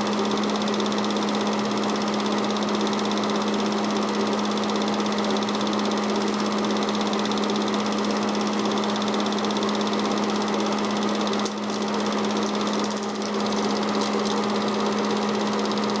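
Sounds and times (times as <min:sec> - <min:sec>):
movie projector motor hum: 0:00.0 - 0:16.0
film advance mechanical clatter: 0:11.0 - 0:15.8.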